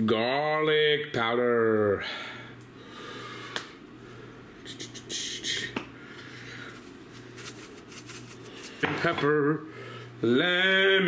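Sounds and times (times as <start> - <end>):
low steady hum: 0.0 - 11.0
seasoning rattling from bottle: 6.7 - 8.8.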